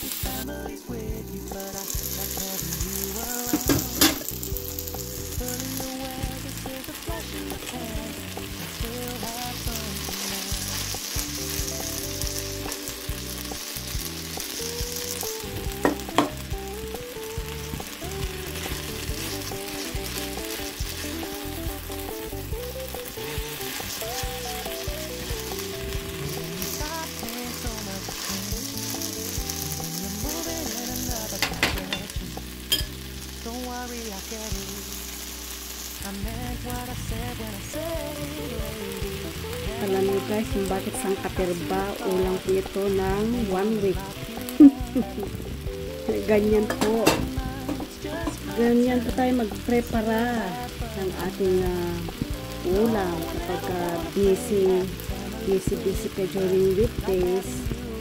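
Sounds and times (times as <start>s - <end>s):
vegetables sizzling in a frying pan: 0.0s - 58.0s.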